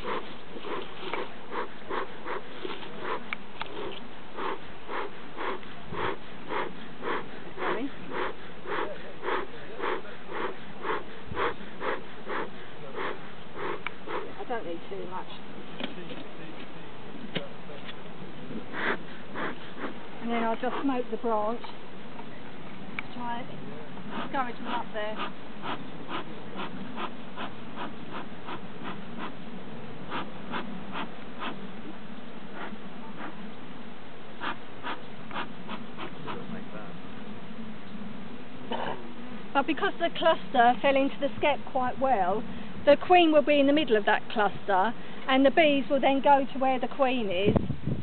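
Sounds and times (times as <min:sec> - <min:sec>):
bellows smoker puffing air: 0:00.0 - 0:14.4, 0:18.6 - 0:21.0, 0:30.0 - 0:31.7, 0:34.4 - 0:36.5.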